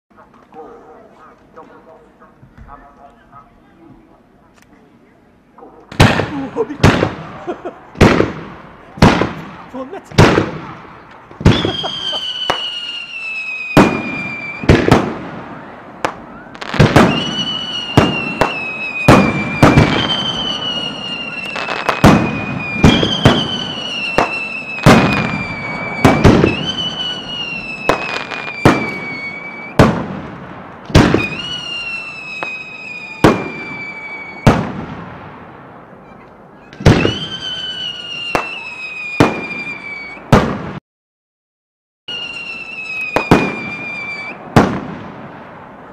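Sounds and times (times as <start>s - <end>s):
fireworks bangs: 5.6s - 40.8s, 42.1s - 45.9s
descending firework whistles: 11.4s - 30.1s, 30.9s - 35.0s, 35.9s - 40.6s, 42.1s - 44.8s.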